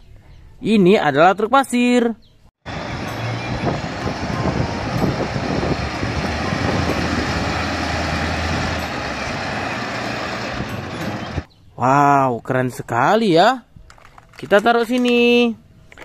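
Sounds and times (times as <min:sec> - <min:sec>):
diesel truck engine under load: 0:02.7 - 0:11.5.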